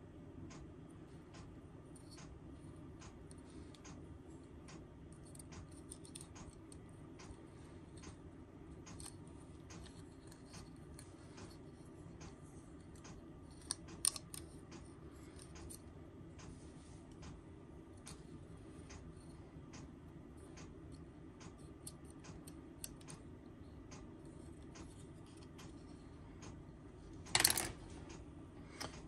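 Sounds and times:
plastic parts clicking: 4.7s - 7.4s, 13.0s - 15.8s, 27.2s - 28.2s.

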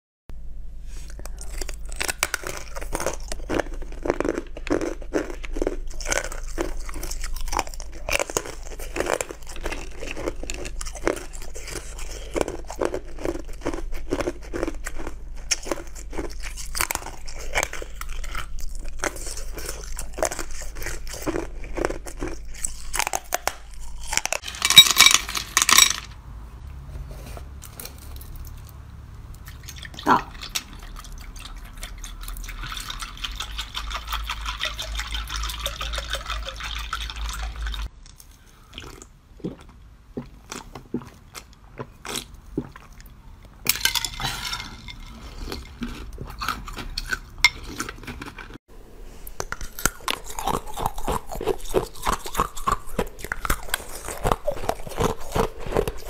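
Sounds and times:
crunching ice: 1.1s - 26.0s, 49.4s - 56.0s.

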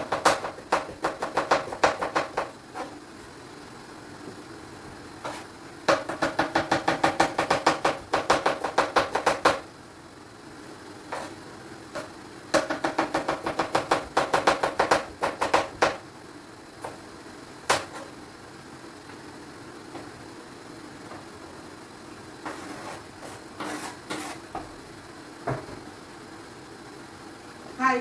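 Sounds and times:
knife chopping on cutting board: 0.0s - 2.9s, 5.2s - 9.6s, 12.0s - 16.0s, 17.7s - 18.1s.

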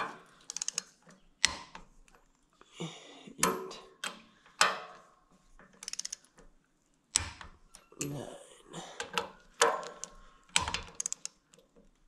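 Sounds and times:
ratchet ticking: 0.5s - 1.8s, 5.8s - 6.4s, 9.6s - 11.5s
torque wrench clicking: 0.5s - 1.8s, 5.8s - 6.4s, 9.6s - 11.6s.

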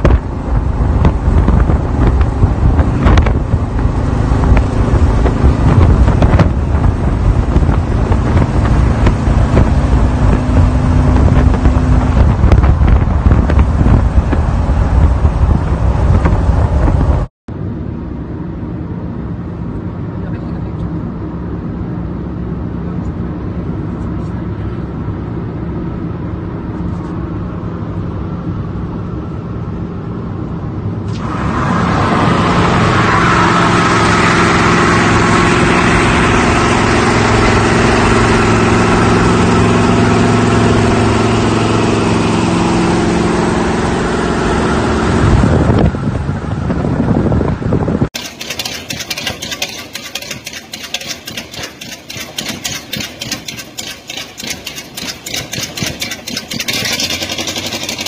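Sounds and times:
road and wind noise: 0.0s - 58.0s
truck engine drone: 0.0s - 58.0s.

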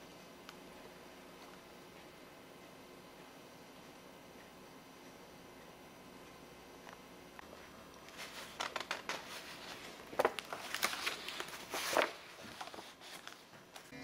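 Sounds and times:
paper pages rustling: 8.0s - 13.9s.

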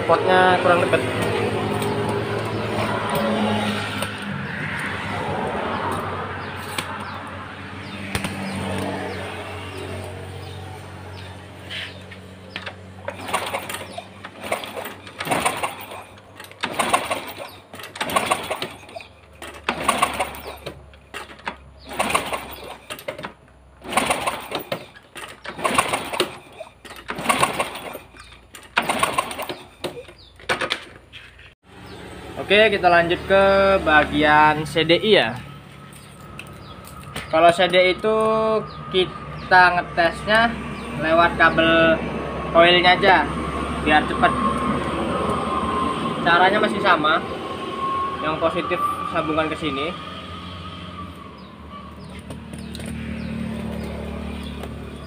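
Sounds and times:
motorcycle engine running unevenly: 0.0s - 4.3s, 7.8s - 23.2s, 51.8s - 55.0s.

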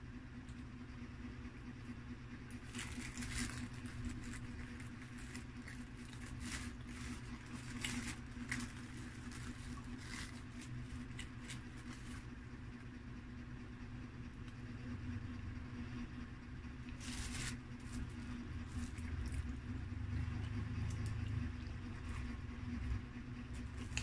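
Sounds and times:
low hum: 0.0s - 24.0s
paper crinkling and rustling: 2.5s - 12.3s, 16.9s - 19.3s.

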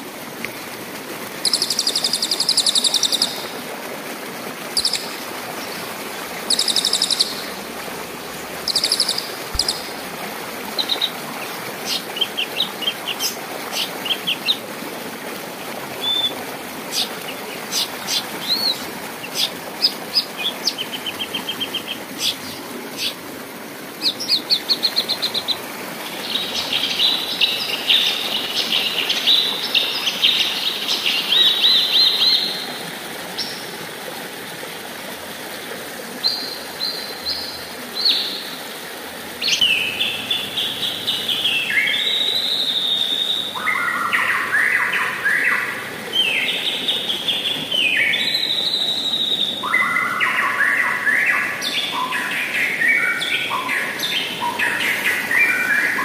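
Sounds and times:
river rushing: 0.0s - 56.0s
songbird varied song phrases: 49.4s - 56.0s.

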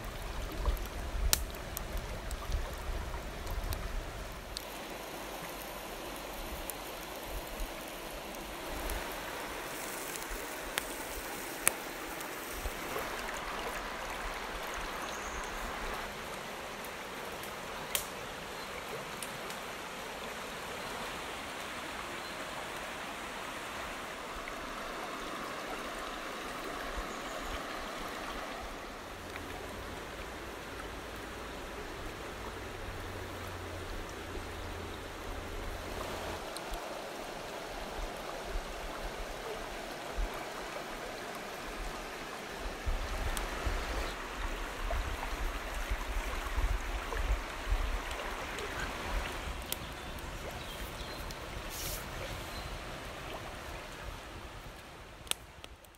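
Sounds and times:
river flowing over stones: 0.0s - 55.9s.

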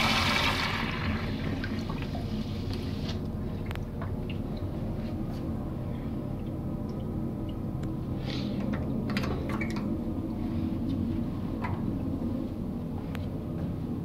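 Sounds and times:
toilet flush water rushing: 0.0s - 2.2s
faint drips and clicks: 3.6s - 4.8s, 6.3s - 8.0s.

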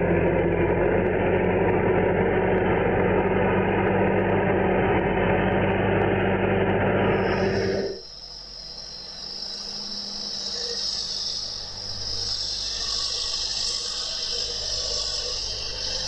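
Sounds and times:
diesel tractor engine running: 0.0s - 8.0s.

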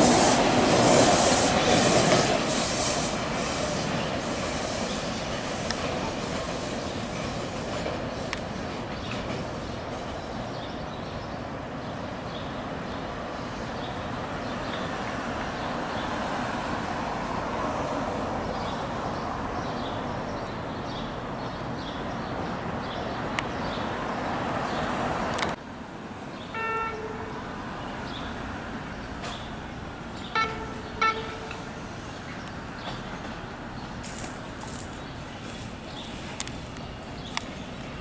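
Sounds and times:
subway train wheels rumbling: 0.0s - 38.0s
subway train horn toot: 26.5s - 27.6s, 30.3s - 31.9s.

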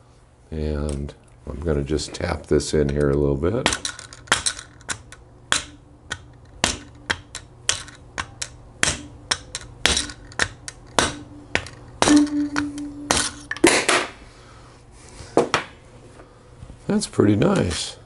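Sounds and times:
small hammer tapping metal: 2.8s - 13.9s.

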